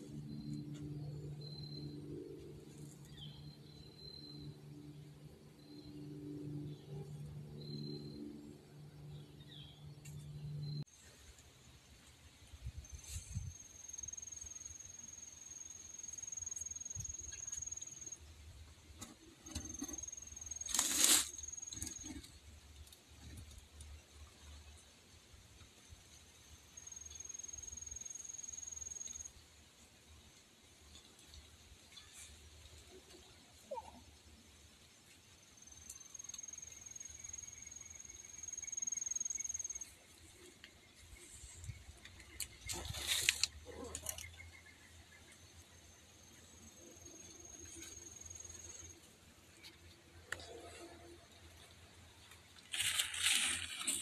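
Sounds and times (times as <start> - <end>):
cricket trilling: 0.0 - 9.2, 19.4 - 22.4, 35.6 - 39.9
short rustle: 52.6 - 54.0.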